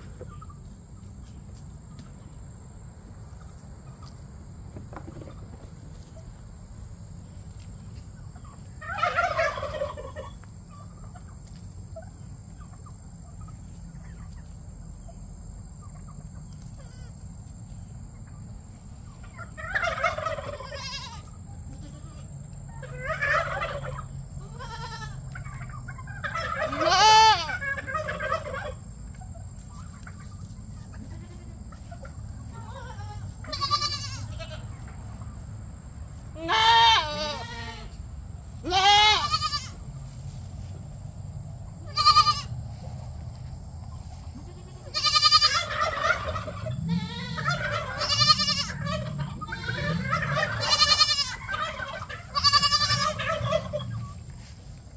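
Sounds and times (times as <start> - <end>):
goats bleating: 20.6 - 22.3, 24.4 - 25.2, 26.6 - 27.6, 31.0 - 31.6, 32.5 - 34.7, 36.4 - 38.0, 38.6 - 39.8, 41.9 - 42.5, 44.4 - 45.7, 46.7 - 54.0.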